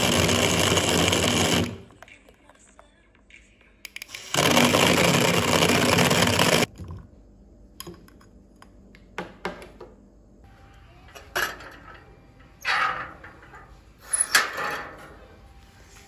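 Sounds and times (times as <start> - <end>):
blender whirring: 0.0 - 1.9, 4.2 - 6.7.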